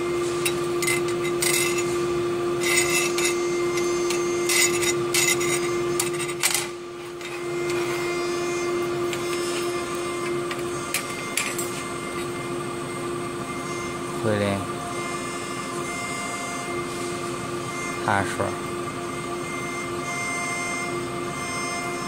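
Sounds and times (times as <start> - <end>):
machine hum: 0.0 - 22.0
metal strip scraping on metal: 0.5 - 2.0, 2.6 - 6.6.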